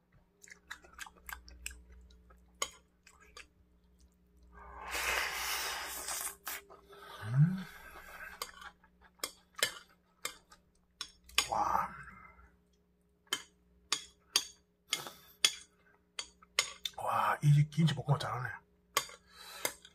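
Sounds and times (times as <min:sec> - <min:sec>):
mouth sounds of eating: 0:00.4 - 0:08.8.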